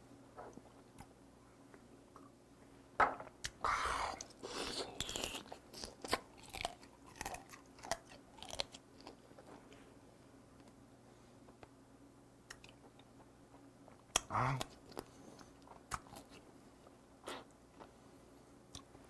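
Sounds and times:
crunching and slurping: 4.0s - 9.5s.

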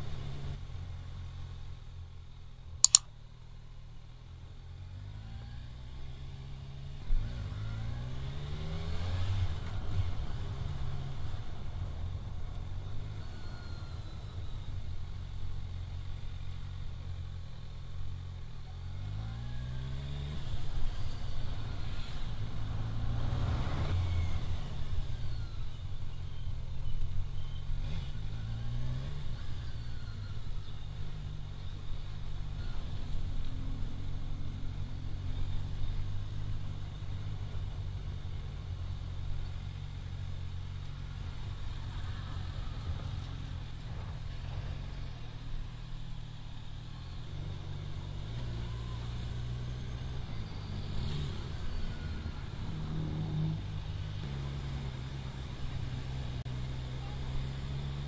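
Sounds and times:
sharp click: 2.8s - 3.1s
motorcycle engine revving: 46.7s - 58.0s.

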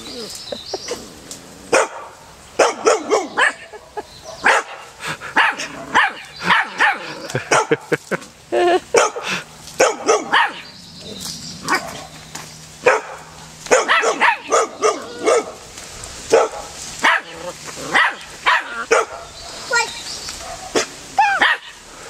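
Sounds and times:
dogs barking: 1.7s - 8.1s, 8.8s - 21.9s.

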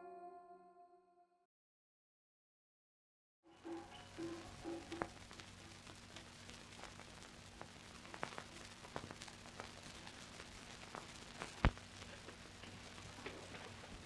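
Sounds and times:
low hum and hiss: 3.5s - 14.0s
film crackles and clicks: 3.6s - 14.0s.

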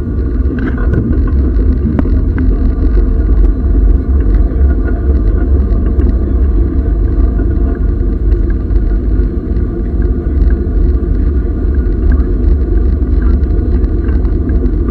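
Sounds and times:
steam train rumble: 0.0s - 14.9s.

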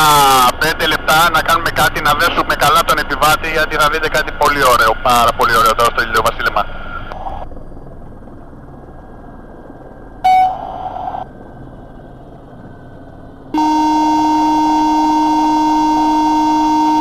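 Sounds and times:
electronic warning horn buzzing: 10.2s - 11.1s, 13.5s - 17.0s.

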